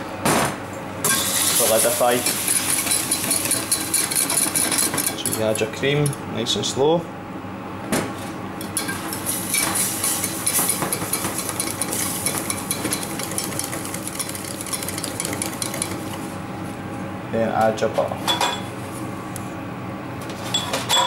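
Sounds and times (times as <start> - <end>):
wire whisk rattling in saucepan: 1.6 - 5.4, 8.8 - 16.3.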